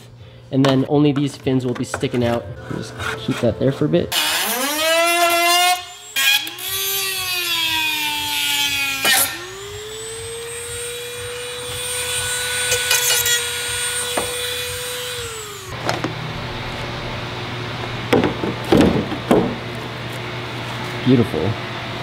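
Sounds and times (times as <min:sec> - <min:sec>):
power cutting tool whining: 0:04.1 - 0:18.2.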